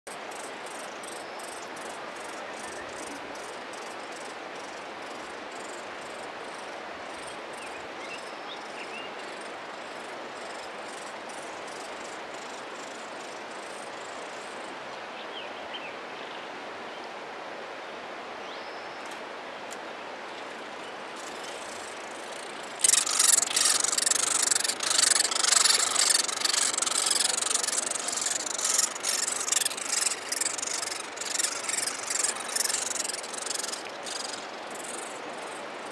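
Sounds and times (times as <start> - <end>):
running water: 19.0 - 35.9
woodpecker nestlings begging calls: 21.7 - 35.5.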